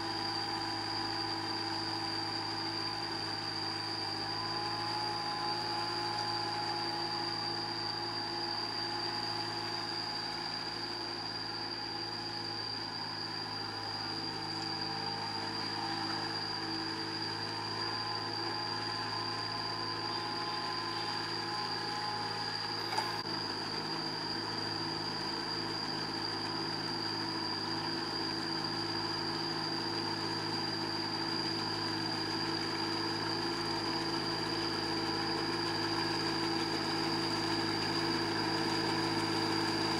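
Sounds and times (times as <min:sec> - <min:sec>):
high-pitched whine: 0:00.0 - 0:39.9
small tractor engine running: 0:00.0 - 0:39.9.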